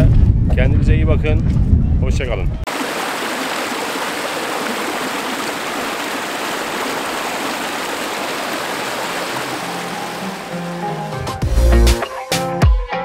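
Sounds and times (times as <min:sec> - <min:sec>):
water rushing over rocks: 0:02.7 - 0:11.3.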